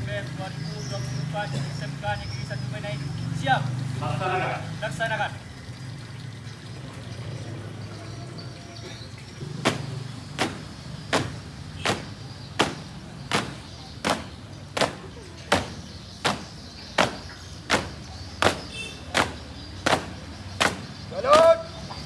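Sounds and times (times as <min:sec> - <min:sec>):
marching boot stamps on concrete: 0:09.6 - 0:20.9.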